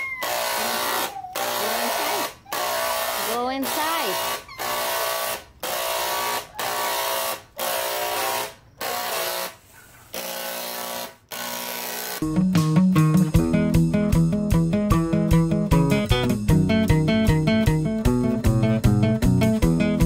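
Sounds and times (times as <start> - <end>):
electric paint spray gun: 0.2 - 12.2
guitar music: 12.2 - 20.0.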